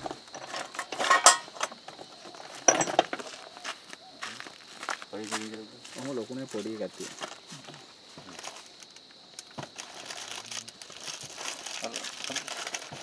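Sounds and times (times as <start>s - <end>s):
packaging crinkling and rustling: 8.2s - 13.0s.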